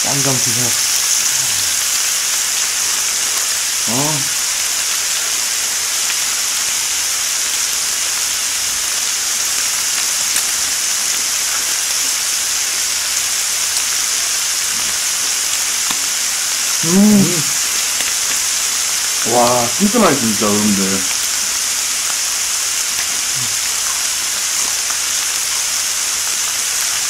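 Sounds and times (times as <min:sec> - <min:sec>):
pork sizzling on a grill: 0:00.0 - 0:27.0.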